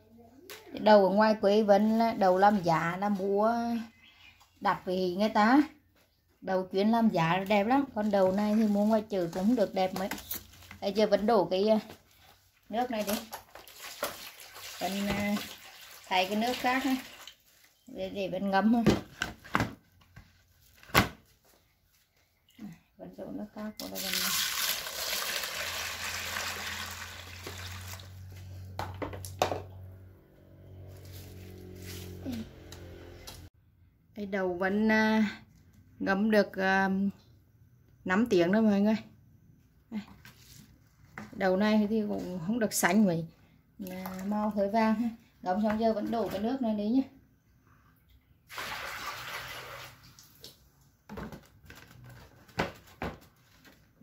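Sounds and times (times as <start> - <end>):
water pouring onto beans: 13.4 - 17.7, 23.8 - 28.2, 48.5 - 50.4.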